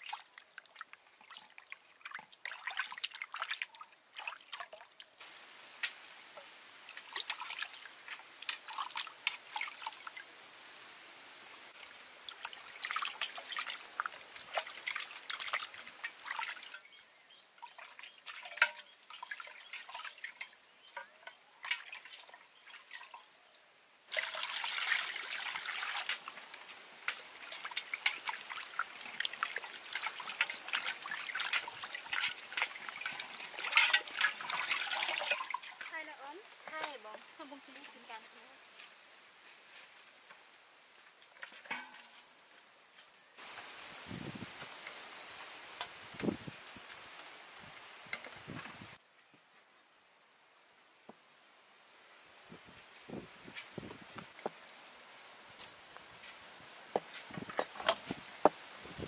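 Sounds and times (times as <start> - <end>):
water splashing in metal pot: 0.0 - 5.2, 5.8 - 10.2, 11.7 - 23.4, 24.1 - 38.2.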